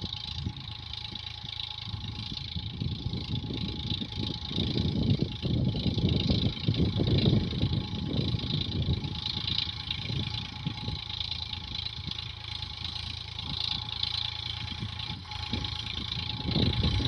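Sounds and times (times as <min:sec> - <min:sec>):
tractor engine running: 0:00.0 - 0:17.0.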